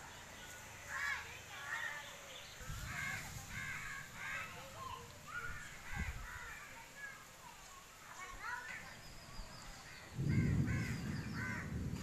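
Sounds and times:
wind buffeting microphone: 2.4 - 6.6, 8.7 - 12.0
crows cawing: 2.9 - 4.8, 10.2 - 12.0.

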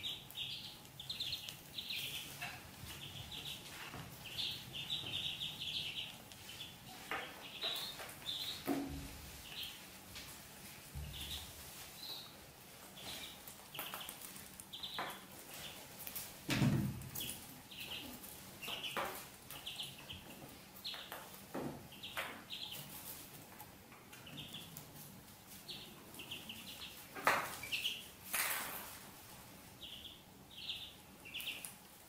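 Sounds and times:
ducklings peeping: 0.0 - 32.0
dry hay rustling: 6.0 - 19.5.

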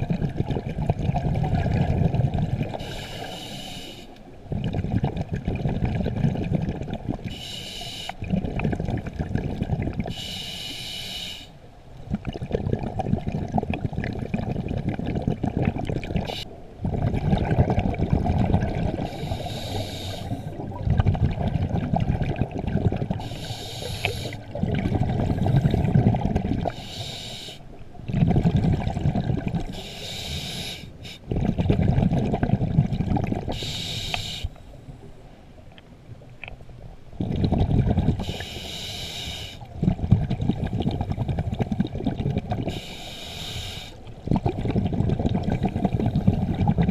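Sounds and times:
bubbly exhaled air underwater: 0.0 - 3.6, 4.3 - 7.6, 8.2 - 10.4, 12.0 - 34.5, 37.1 - 38.9, 39.5 - 46.9
regulator hiss: 2.8 - 4.2, 7.3 - 8.2, 10.1 - 11.5, 19.0 - 20.5, 23.2 - 24.5, 26.8 - 27.7, 29.8 - 31.2, 33.6 - 34.6, 38.2 - 39.6, 42.7 - 44.0.

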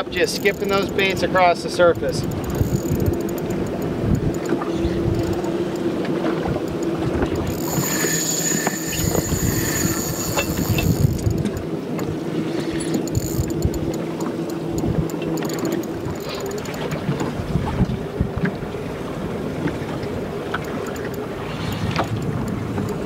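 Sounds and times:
wind on microphone: 0.0 - 14.0, 14.6 - 23.0
boat motor running: 0.0 - 23.0
fishing reel drag buzzing: 0.1 - 6.0, 6.6 - 11.7, 12.4 - 17.0.

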